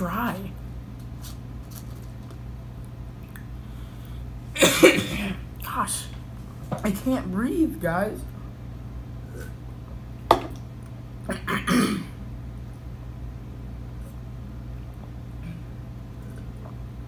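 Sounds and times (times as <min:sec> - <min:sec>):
low steady hum: 0:00.0 - 0:17.0
throat-clearing coughs: 0:04.6 - 0:05.4, 0:11.3 - 0:12.2
person coughing: 0:04.6 - 0:05.5, 0:11.3 - 0:12.2.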